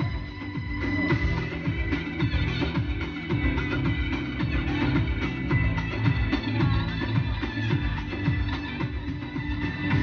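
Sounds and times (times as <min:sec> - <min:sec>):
folk dance music over loudspeakers: 0:00.0 - 0:10.0.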